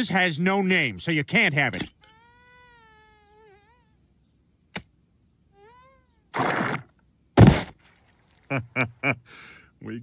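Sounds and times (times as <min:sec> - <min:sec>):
sharp click: 0:04.7 - 0:04.9
hissing burst: 0:06.4 - 0:07.8
loud sudden thud: 0:07.4 - 0:07.8.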